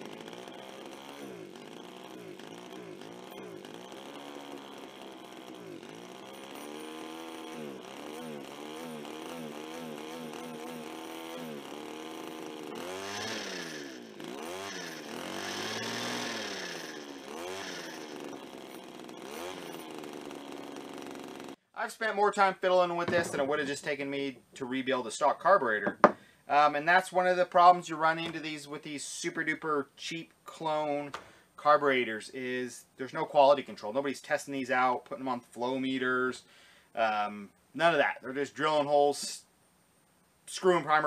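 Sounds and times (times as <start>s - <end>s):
chainsaw engine hunting: 0.0s - 29.8s.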